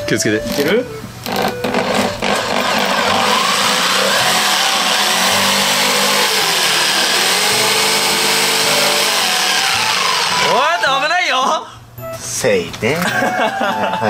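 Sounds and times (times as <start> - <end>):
jigsaw cutting wood: 1.3 - 11.1.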